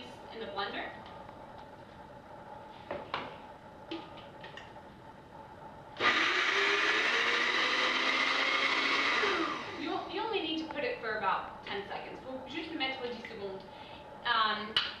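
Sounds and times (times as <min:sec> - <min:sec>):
blender grinding: 0:06.0 - 0:10.0.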